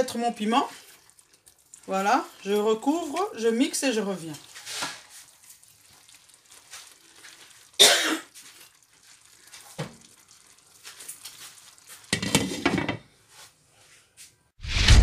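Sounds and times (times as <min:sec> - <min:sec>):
short sharp burst of noise: 0:14.6 - 0:15.0.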